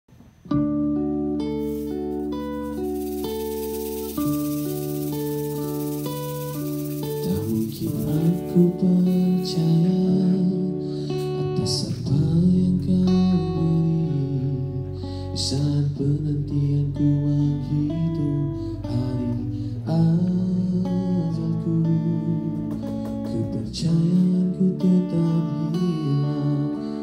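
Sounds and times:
electric bass: 0:00.1 - 0:27.0
strummed acoustic guitar: 0:00.4 - 0:27.0
cajon beats: 0:01.4 - 0:10.1, 0:22.3 - 0:24.5
man singing into a microphone: 0:07.0 - 0:27.0.

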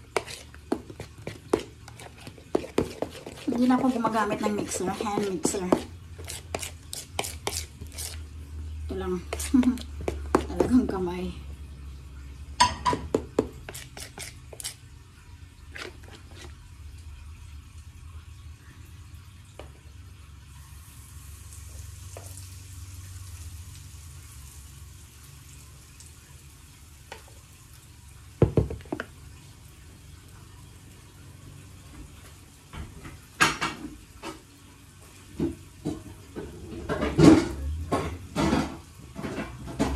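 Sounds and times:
batter hissing in hot pan: 0:20.5 - 0:26.5.

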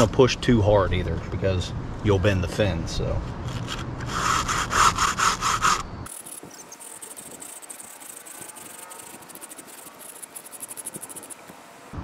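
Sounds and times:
brush scrubbing metal fins: 0:03.5 - 0:11.5
faint high insect buzz: 0:05.3 - 0:12.0.

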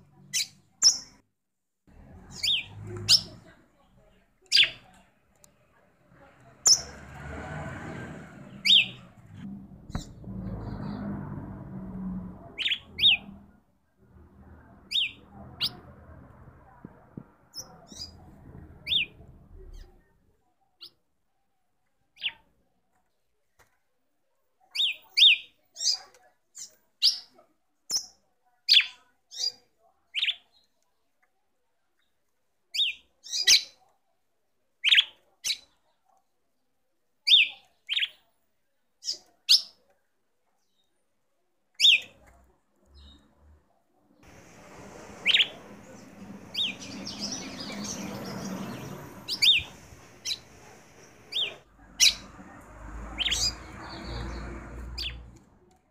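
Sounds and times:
low steady rumble: 0:05.4 - 0:20.0, 0:44.2 - 0:55.6.

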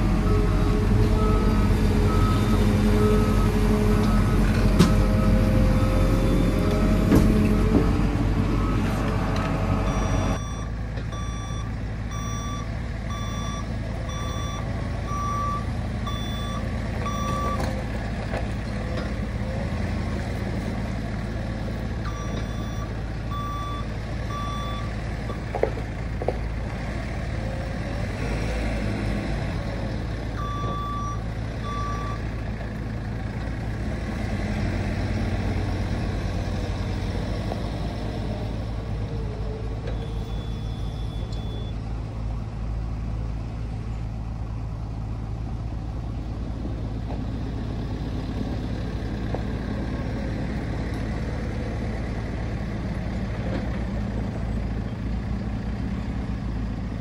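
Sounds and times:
diesel engine running: 0:00.0 - 0:57.0
reversing alarm beeping: 0:09.8 - 0:17.6, 0:22.1 - 0:24.9, 0:30.4 - 0:32.2, 0:39.9 - 0:41.8.

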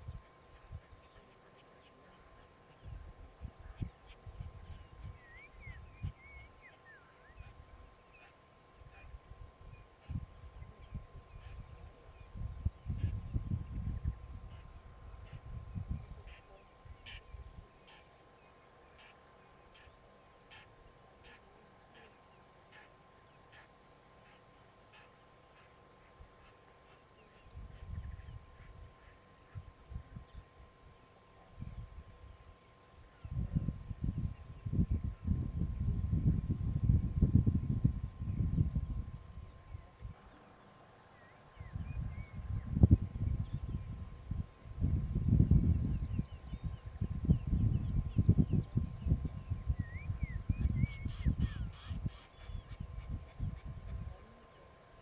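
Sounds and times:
faint bird chirps: 0:00.0 - 0:37.3, 0:37.9 - 0:55.0
faint steady tone: 0:00.0 - 0:55.0
birds whistling and chirping: 0:04.2 - 0:07.5, 0:49.4 - 0:53.6.

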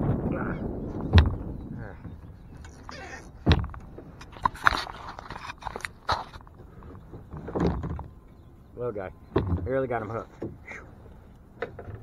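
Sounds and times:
knocks and clatter in kayak: 0:00.8 - 0:08.2, 0:09.3 - 0:10.6, 0:11.6 - 0:12.0.

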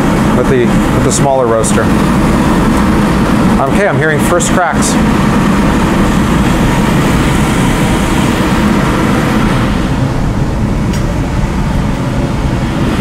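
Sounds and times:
coffee roaster blower running: 0:00.0 - 0:13.0
sharp click: 0:10.9 - 0:11.1.

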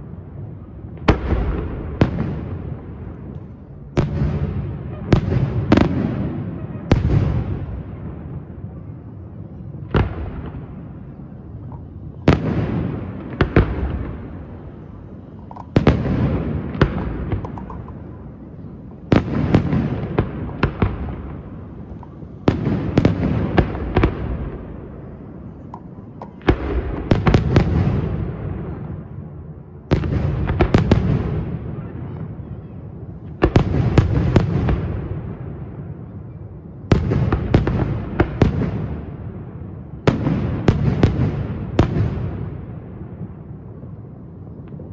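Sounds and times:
rolling echo: 0:00.0 - 0:44.9
firework shells bursting: 0:15.1 - 0:24.0, 0:25.5 - 0:27.3.

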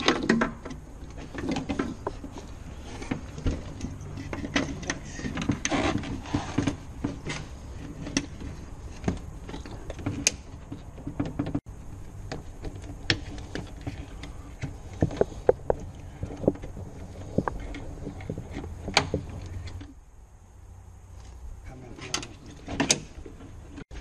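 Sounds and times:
scraping rustle: 0:01.1 - 0:20.0.

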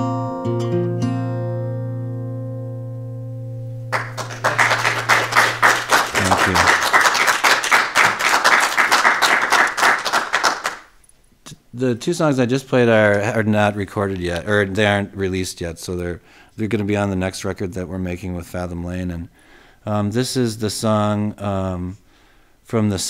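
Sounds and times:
acoustic guitar chord ringing: 0:00.0 - 0:04.2
applause: 0:03.9 - 0:11.0.

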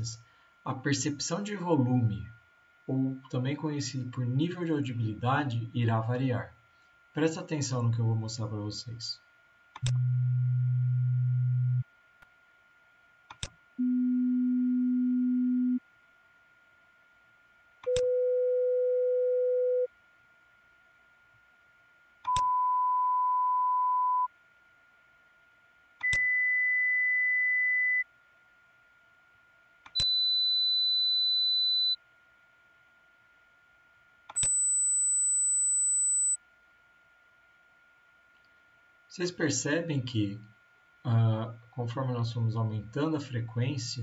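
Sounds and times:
sine test tones: 0:09.8 - 0:12.0, 0:13.8 - 0:15.9, 0:17.8 - 0:20.0, 0:22.2 - 0:24.4, 0:26.0 - 0:28.2, 0:29.9 - 0:32.1, 0:34.3 - 0:36.4
tone onset click: 0:34.3 - 0:34.8.

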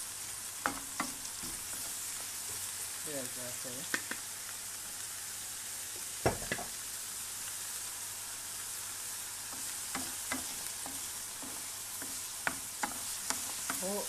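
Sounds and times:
vegetables sizzling in oil: 0:00.0 - 0:14.0
wooden spoon knocking on pan: 0:06.2 - 0:06.8, 0:09.6 - 0:13.9
spoon scraping pan: 0:09.5 - 0:14.0.

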